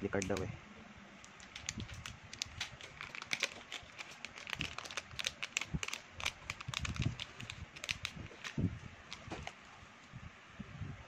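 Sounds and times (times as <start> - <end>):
plastic crinkling: 1.2 - 9.6.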